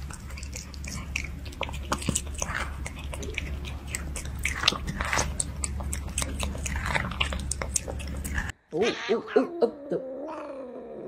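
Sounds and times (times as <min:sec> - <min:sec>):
cat crunching strawberry: 0:00.0 - 0:08.6
cat yowling: 0:08.7 - 0:11.0.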